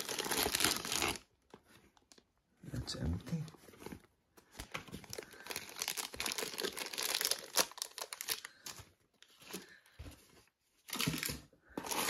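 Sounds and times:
plastic bag crinkling: 0:05.0 - 0:08.7.

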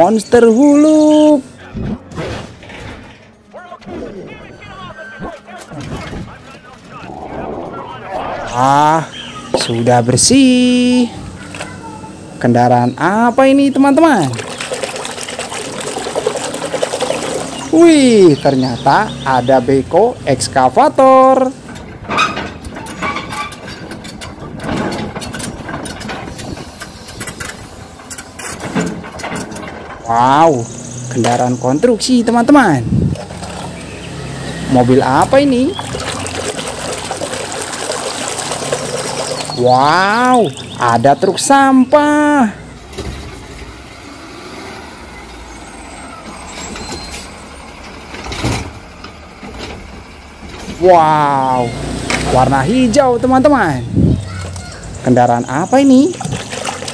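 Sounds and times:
lifting arm rush of noise: 0:07.0 - 0:08.8
garbage truck engine rumble: 0:21.6 - 0:31.7, 0:42.5 - 0:55.2.

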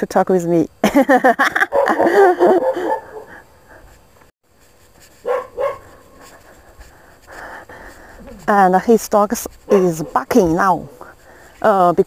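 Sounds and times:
dog barking: 0:01.7 - 0:03.4, 0:05.2 - 0:06.0.

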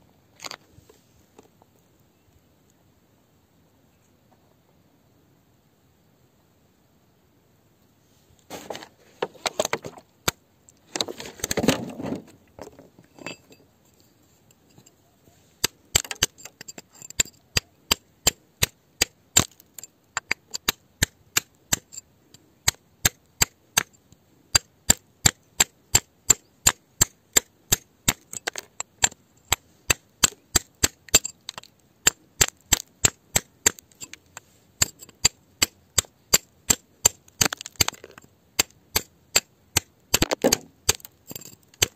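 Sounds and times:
digging tool scraping earth: 0:08.4 - 0:10.1, 0:10.9 - 0:14.2
digging tool striking: 0:15.6 - 0:22.0, 0:34.8 - 0:41.9.

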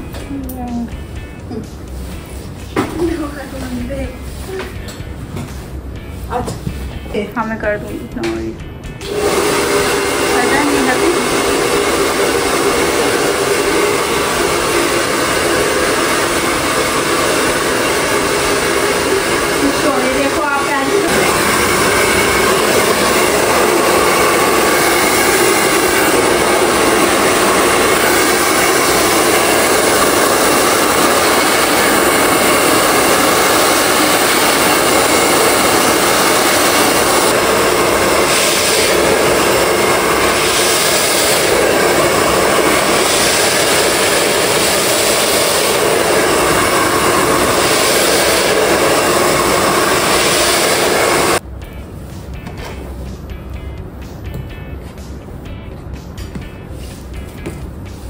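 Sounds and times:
hair dryer blowing: 0:09.0 - 0:51.4.

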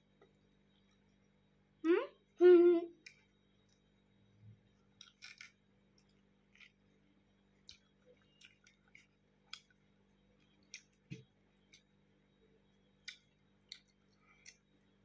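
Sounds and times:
child chewing: 0:04.6 - 0:11.9, 0:13.0 - 0:14.8.

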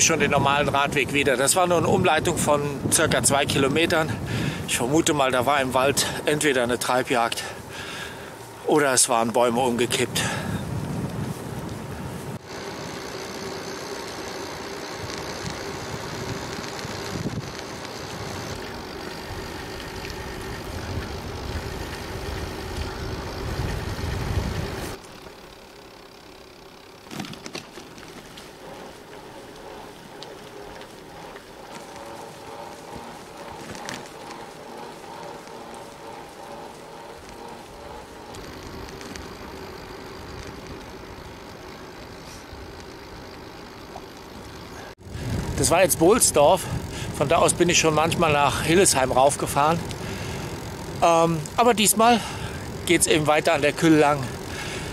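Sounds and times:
wind rumbling on microphone: 0:00.0 - 0:13.8, 0:14.4 - 0:25.0, 0:44.4 - 0:54.9
bicycle tyre and road noise: 0:00.0 - 0:54.9
faint hum: 0:00.0 - 0:54.9.

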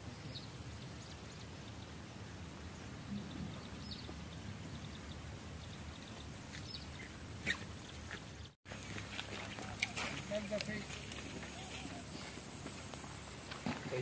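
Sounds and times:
bird chirps: 0:02.9 - 0:08.6.

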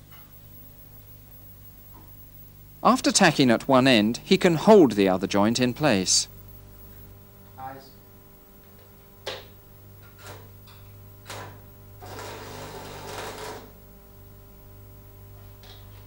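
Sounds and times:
welding arc crackling: 0:11.2 - 0:13.7.

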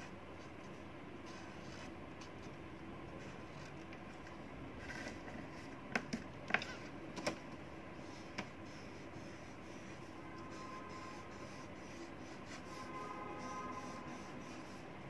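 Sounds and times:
soft scratching: 0:08.0 - 0:15.0.

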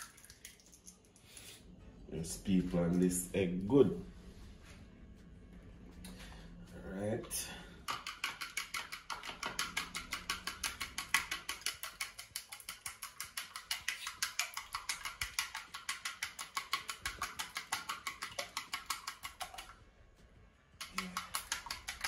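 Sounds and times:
egg beaten in bowl: 0:07.8 - 0:19.8, 0:20.8 - 0:22.0.

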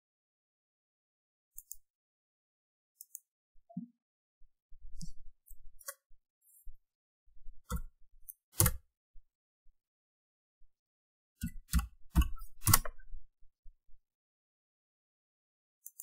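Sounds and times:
mouse and keyboard clicks: 0:01.6 - 0:01.9, 0:03.0 - 0:03.3, 0:05.0 - 0:06.6, 0:07.7 - 0:08.8, 0:11.4 - 0:13.1.

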